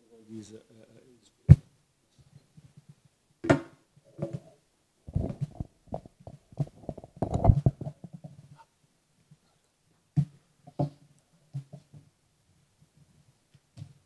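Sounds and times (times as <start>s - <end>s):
microphone handling noise: 5.1s - 8.6s.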